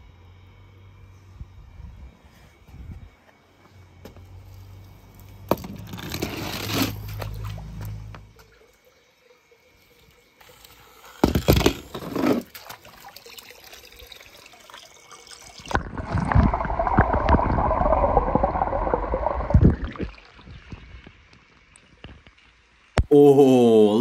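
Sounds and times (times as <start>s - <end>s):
water splashing: 12.3s - 21.6s
muffled underwater gurgling: 15.7s - 20.3s.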